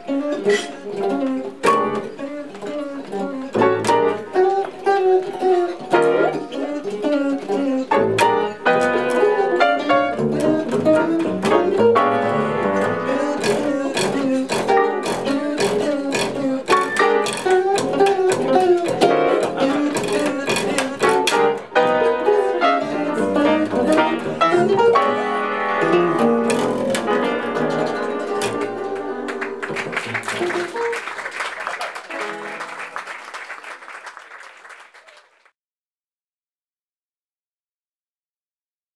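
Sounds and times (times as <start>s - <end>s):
double bass playing: 0.0s - 30.9s
jazz guitar playing: 0.0s - 31.1s, 32.0s - 33.0s.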